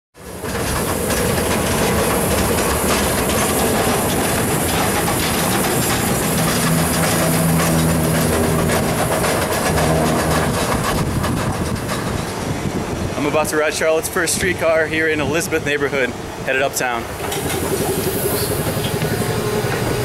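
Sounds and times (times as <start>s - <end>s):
streetcar wheels on track: 0.2s - 20.0s
low hum: 1.1s - 12.4s.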